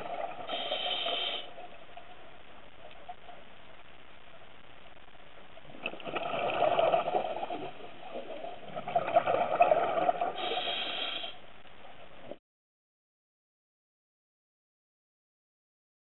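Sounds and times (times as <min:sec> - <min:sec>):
faint steady hiss: 0:00.0 - 0:12.4
underwater bubble bursts: 0:05.6 - 0:10.8.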